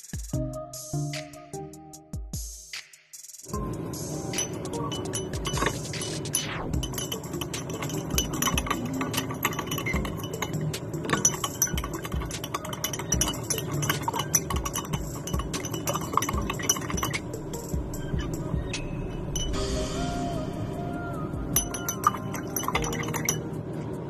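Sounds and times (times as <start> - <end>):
spoon clinking against glass: 4.3 - 19.6, 21.6 - 23.6.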